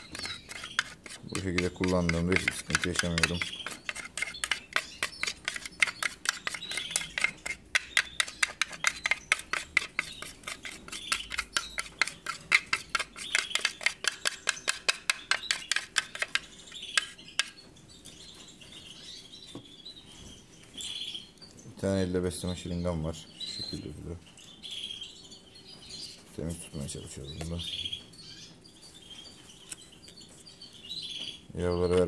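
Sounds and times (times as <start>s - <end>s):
spoon stirring in plastic dish: 0.0s - 17.6s.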